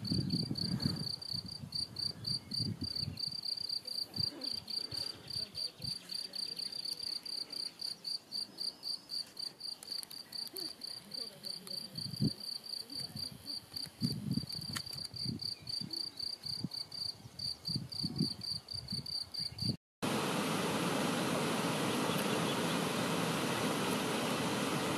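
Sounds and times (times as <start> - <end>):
cricket chirping: 0.0 - 19.8.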